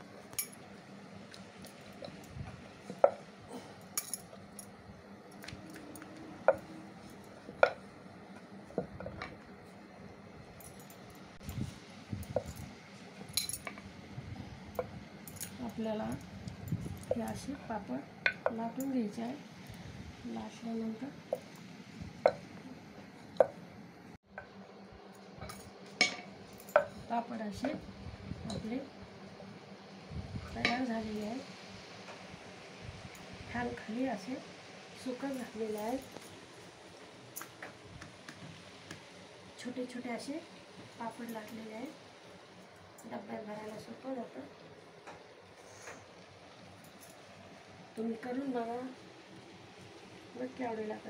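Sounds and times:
bangles clinking: 0:03.8 - 0:04.8, 0:10.6 - 0:11.6, 0:13.3 - 0:13.7.

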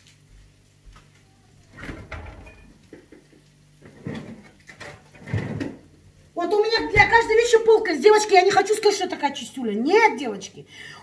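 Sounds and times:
fridge door opening: 0:01.6 - 0:02.8, 0:06.7 - 0:07.6.

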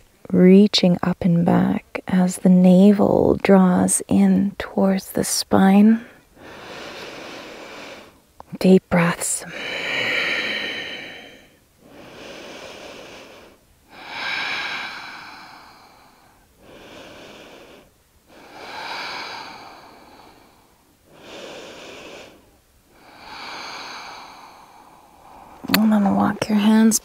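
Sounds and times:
woman breathing deeply: 0:06.0 - 0:08.3, 0:09.4 - 0:25.8.

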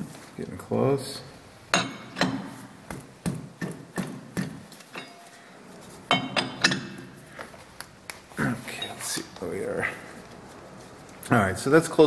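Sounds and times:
sharp metal knocks: 0:01.7 - 0:05.3, 0:06.1 - 0:07.2.

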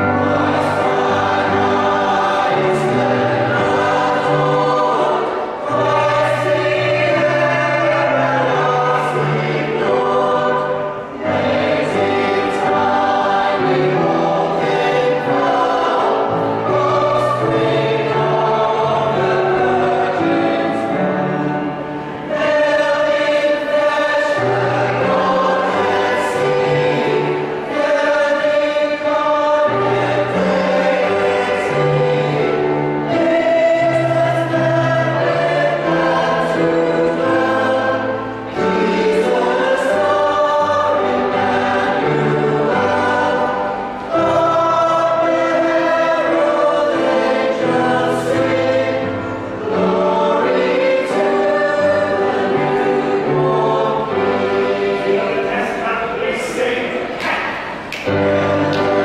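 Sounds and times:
mixed choir singing carol: 0:00.0 - 0:59.0.

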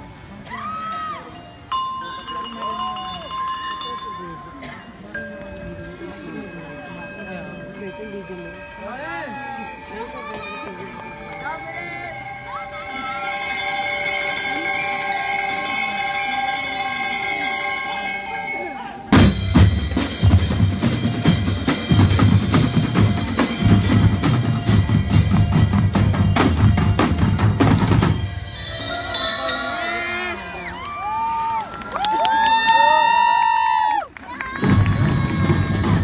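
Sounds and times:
crowd shouting and cheering: 0:08.8 - 0:36.0
drum line playing fast rhythm: 0:09.7 - 0:31.4, 0:34.5 - 0:36.0
ringing lyre chord: 0:23.4 - 0:31.0.

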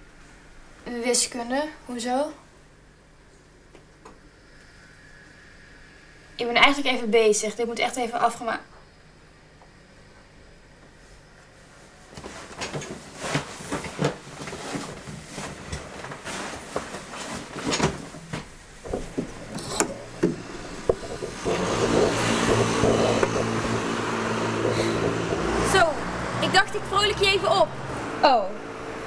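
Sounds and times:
outdoor traffic noise: 0:00.0 - 0:13.4, 0:15.6 - 0:29.0
vehicle engine humming: 0:18.2 - 0:29.0
sharp knocks and taps: 0:18.9 - 0:25.8.

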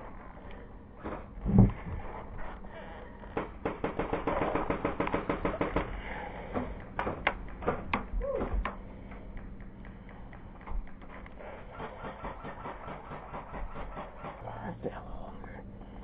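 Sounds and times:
airsoft gunfire: 0:03.4 - 0:06.1, 0:10.2 - 0:14.4.

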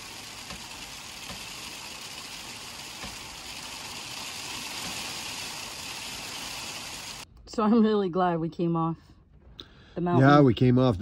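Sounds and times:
rain on windshield: 0:00.0 - 0:07.2
raindrops tapping: 0:00.0 - 0:07.2.

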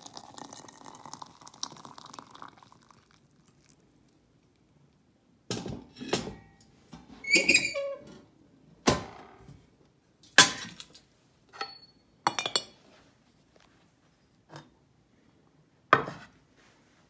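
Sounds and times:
teapot clinking on metal: 0:11.6 - 0:12.8.

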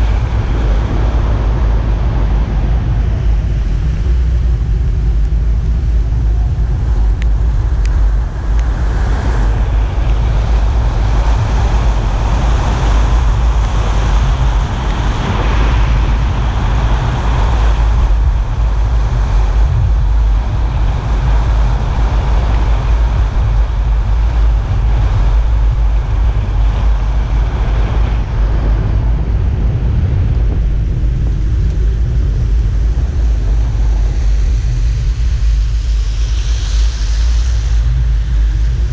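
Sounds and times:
road noise: 0:00.0 - 0:38.9
tyres hissing on wet tarmac: 0:00.0 - 0:38.9
wind buffeting microphone: 0:00.0 - 0:38.9.

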